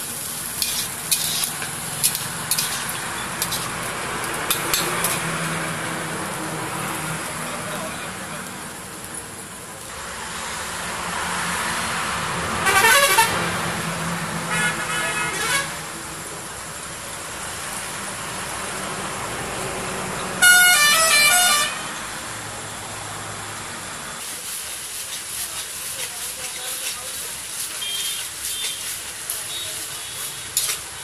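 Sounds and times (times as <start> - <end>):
gravy sizzling in a pan: 0.0 - 12.0, 24.0 - 31.0
vehicle horns honking: 12.6 - 13.6, 14.5 - 15.8, 20.4 - 22.0, 27.7 - 30.8.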